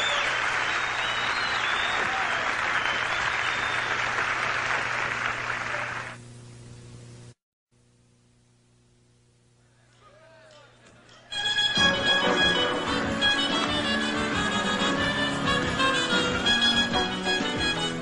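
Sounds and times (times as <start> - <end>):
high whistles: 0.0 - 4.1
audience applauding and cheering: 0.0 - 6.2, 10.0 - 18.0
low steady recording hum: 1.7 - 11.4.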